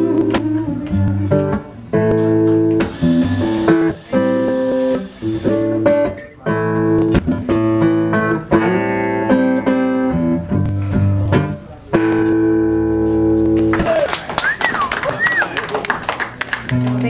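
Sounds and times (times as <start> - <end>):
acoustic guitar strumming chords: 0.0 - 14.0.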